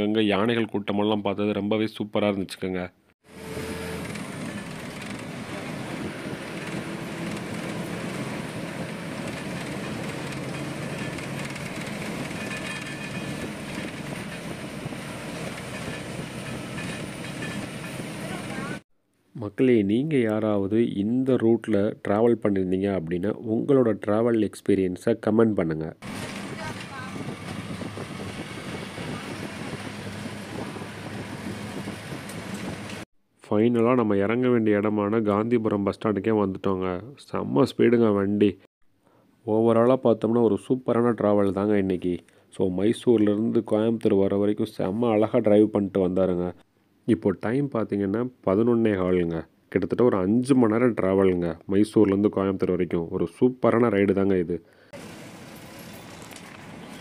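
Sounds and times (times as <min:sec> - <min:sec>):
bus engine and road noise: 0:03.3 - 0:18.8, 0:26.0 - 0:33.1, 0:55.0 - 0:57.0.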